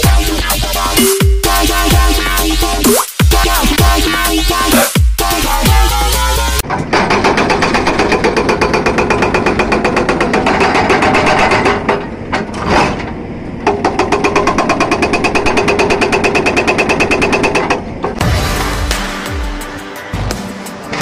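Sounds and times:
hydraulic breaker hammering rock: 0:06.6 - 0:12.6, 0:13.6 - 0:19.0.

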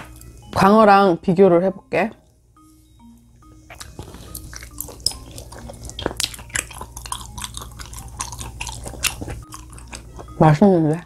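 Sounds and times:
wet chewing mouth clicks: 0:03.7 - 0:10.3.

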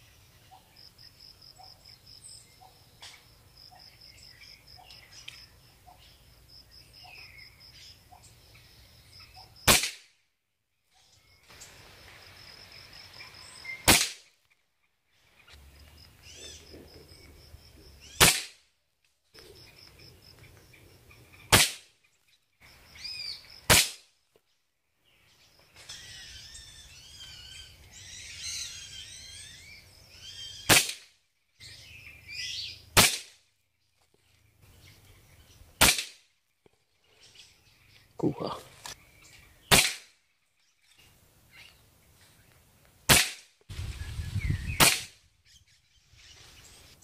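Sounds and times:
birds chirping: 0:00.0 - 0:09.6, 0:10.9 - 0:18.3, 0:19.3 - 0:23.7, 0:24.5 - 0:30.7, 0:31.4 - 0:32.9, 0:36.7 - 0:42.7
air rifle shots: 0:09.6 - 0:10.1, 0:13.8 - 0:14.3, 0:18.2 - 0:18.6, 0:21.5 - 0:21.9, 0:23.7 - 0:24.0, 0:30.7 - 0:31.1, 0:33.0 - 0:33.4, 0:35.8 - 0:36.2, 0:39.7 - 0:40.1, 0:43.1 - 0:43.5, 0:44.8 - 0:45.2
burst of bird calls: 0:43.1 - 0:47.0.

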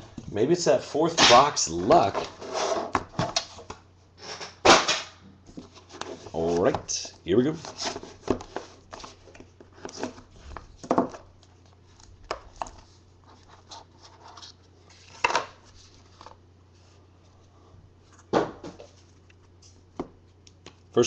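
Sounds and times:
cards scraping and rustling: 0:01.8 - 0:04.6, 0:05.5 - 0:17.0.

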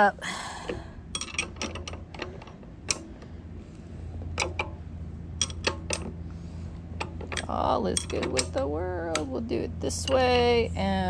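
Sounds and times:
wrench clicking on metal: 0:01.1 - 0:03.2, 0:05.4 - 0:06.2, 0:07.0 - 0:10.6.

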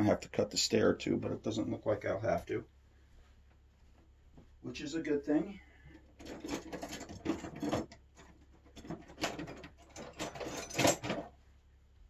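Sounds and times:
hands rummaging among small parts: 0:06.0 - 0:11.4.

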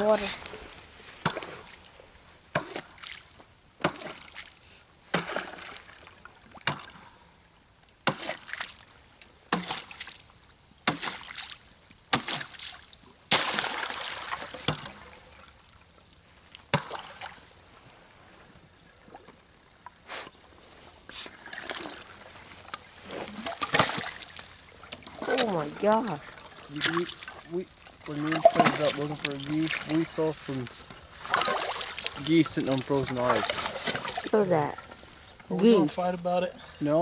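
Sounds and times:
water splashing: 0:00.0 - 0:07.2, 0:08.0 - 0:18.3, 0:18.9 - 0:36.4
crunching splash: 0:01.1 - 0:01.9, 0:02.5 - 0:07.0, 0:08.0 - 0:15.8, 0:16.5 - 0:17.6, 0:21.1 - 0:35.0.

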